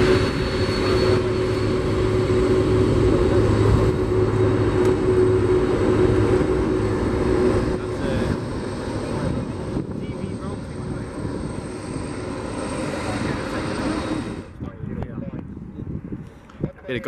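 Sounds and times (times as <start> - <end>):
aircraft engines rumbling: 0.0 - 17.0.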